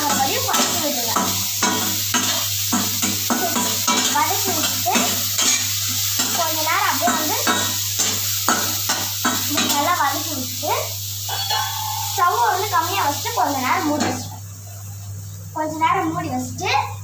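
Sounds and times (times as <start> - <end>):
vegetables sizzling in hot oil: 0.0 - 17.0
spatula scraping a pan: 0.5 - 6.4.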